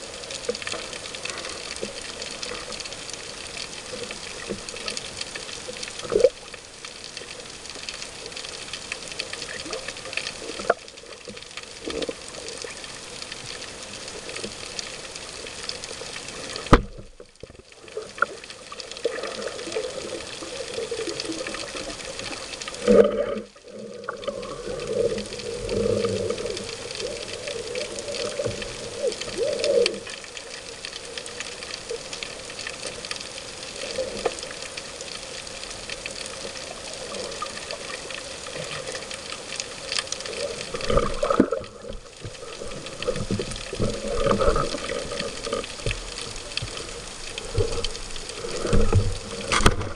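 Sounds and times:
muffled underwater noise: 0:17.7 - 0:49.9.

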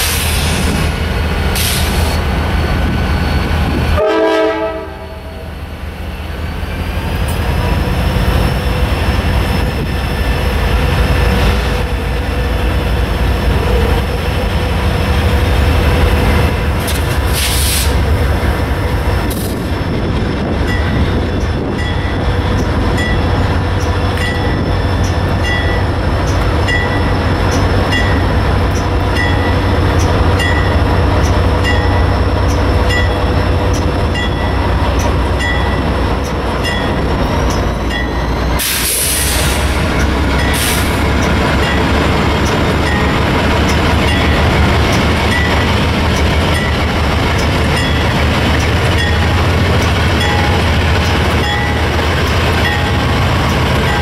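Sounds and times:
diesel locomotives rumbling: 0:00.0 - 0:54.0
short burst of hiss: 0:17.3 - 0:18.0
locomotive bell dinging: 0:20.4 - 0:38.4, 0:39.8 - 0:54.0.

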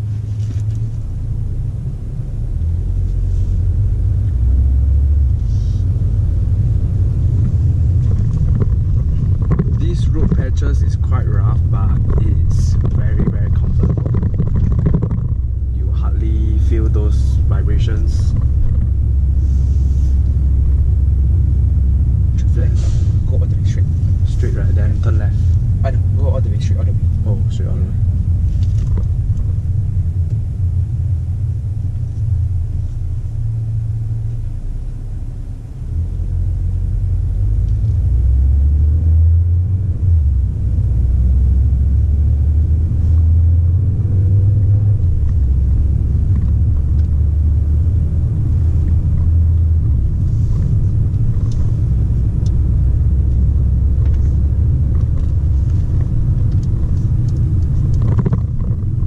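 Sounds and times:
car cabin road and engine rumble: 0:00.0 - 0:59.0.

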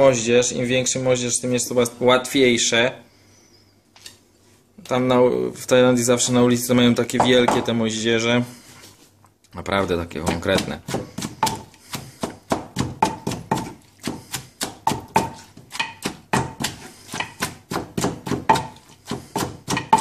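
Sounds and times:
wooden pestle pounding in mortar: 0:07.2 - 0:07.7, 0:10.2 - 0:20.0.

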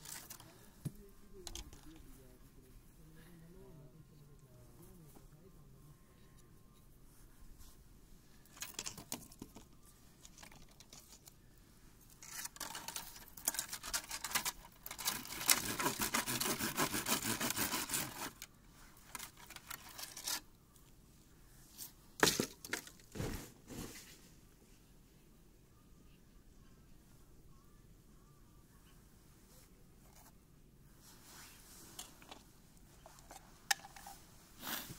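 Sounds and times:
rustling and crinkling handling: 0:07.1 - 0:16.4, 0:17.4 - 0:20.5, 0:21.7 - 0:24.8, 0:29.4 - 0:34.9.

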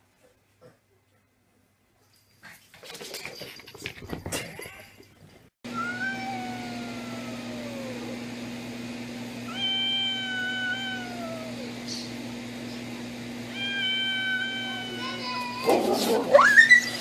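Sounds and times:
cat yowling: 0:05.7 - 0:08.2, 0:09.5 - 0:12.0, 0:13.5 - 0:17.0.

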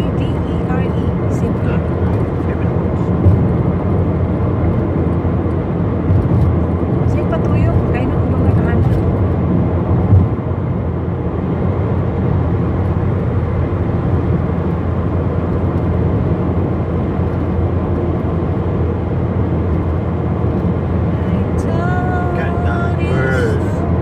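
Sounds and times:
car road and engine noise: 0:00.0 - 0:24.0.

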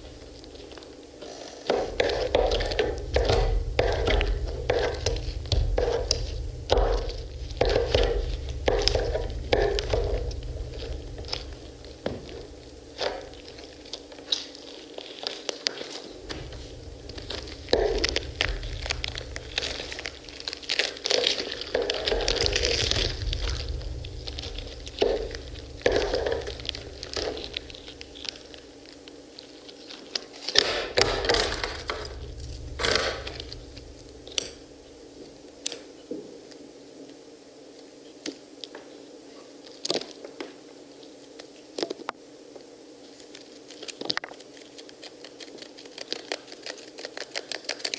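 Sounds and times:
low steady hum: 0:00.0 - 0:47.9.

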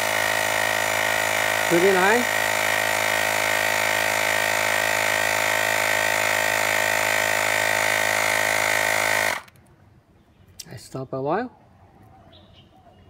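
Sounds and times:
electric compressor motor drone: 0:00.0 - 0:09.5.

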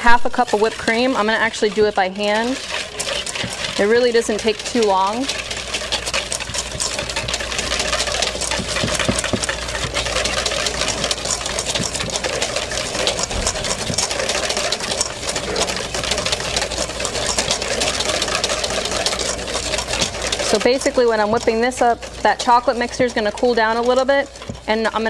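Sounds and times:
whisk beating in metal bowl: 0:00.0 - 0:25.0.

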